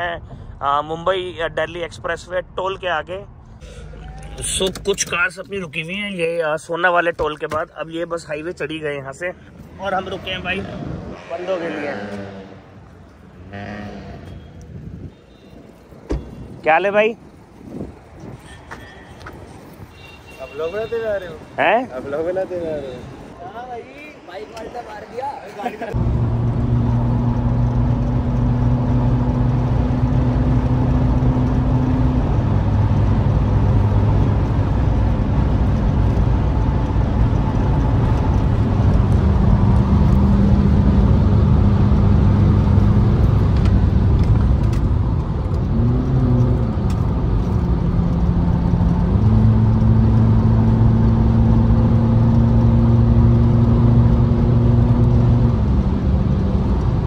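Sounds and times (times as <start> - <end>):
tyre and wind roar: 0.0 - 57.0
car engine droning: 25.9 - 57.0.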